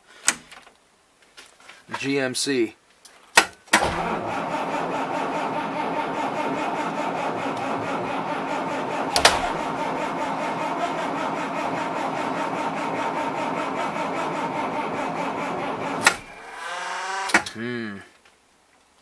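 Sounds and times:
diesel engine idling with clatter: 3.8 - 16.4.

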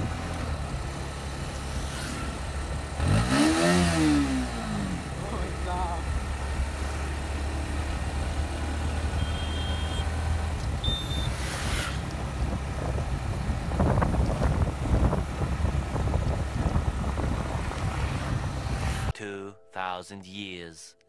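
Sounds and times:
motorcycle engine running: 0.0 - 19.1
short high beeps: 9.2 - 10.1, 10.8 - 11.4
wind buffeting microphone: 10.1 - 19.1.

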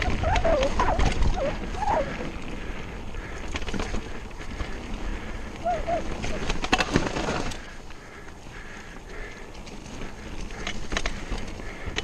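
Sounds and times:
wavering squeal: 0.0 - 2.2
bike clicks and rattles: 0.0 - 12.0
bike tyres on dirt: 0.0 - 12.0.

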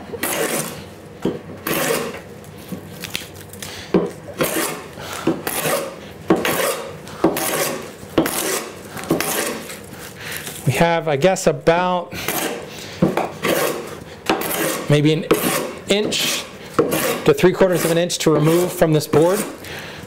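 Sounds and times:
hand plane rasping on wood: 0.2 - 0.8, 1.6 - 2.2, 4.4 - 9.7, 12.2 - 12.6, 13.4 - 19.6.

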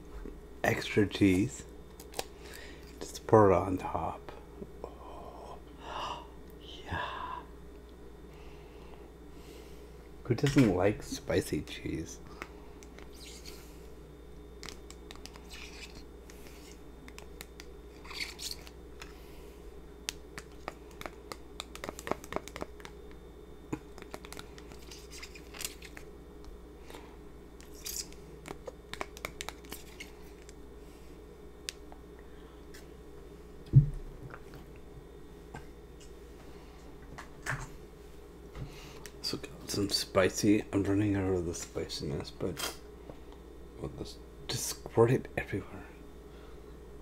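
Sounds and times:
loud thump: 33.7 - 34.0.

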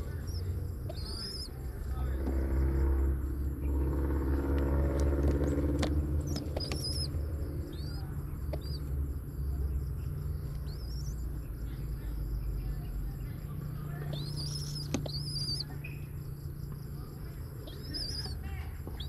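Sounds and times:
motor drone: 0.0 - 11.1
low rumble: 0.0 - 18.2
birds chirping: 0.0 - 19.0.

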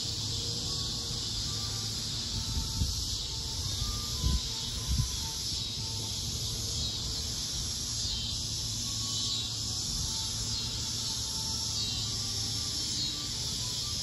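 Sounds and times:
insect chorus: 0.0 - 14.0
wind buffeting microphone: 2.4 - 5.4.

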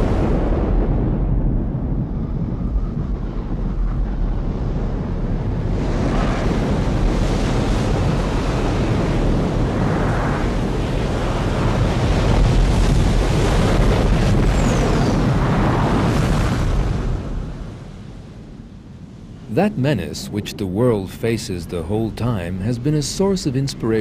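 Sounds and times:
explosion rumble: 0.0 - 8.1.

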